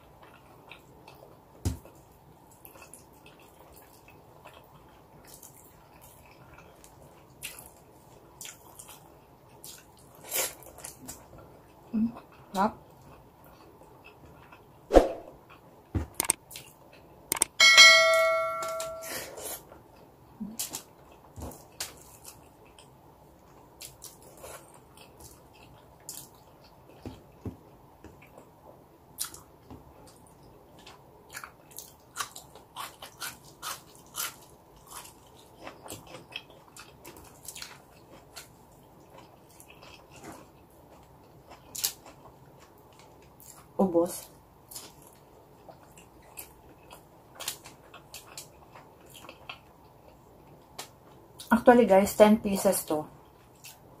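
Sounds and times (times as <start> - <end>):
bell-like ding: 17.6 - 19.2.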